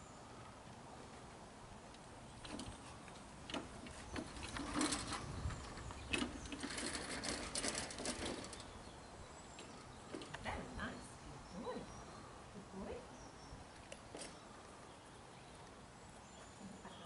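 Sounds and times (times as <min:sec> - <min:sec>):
metal trolley rattling and clattering: 0:03.8 - 0:08.8.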